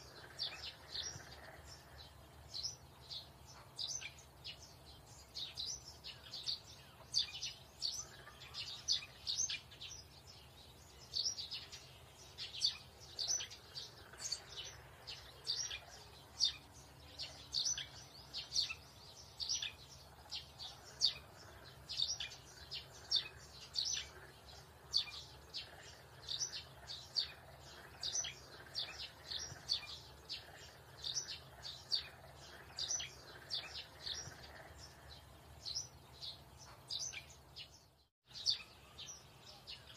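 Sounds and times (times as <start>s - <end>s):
small birds chirping: 0.0s - 39.9s.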